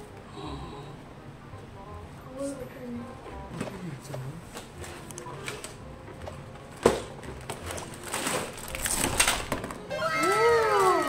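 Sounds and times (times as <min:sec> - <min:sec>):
plastic bags crinkling: 0:07.4 - 0:11.0.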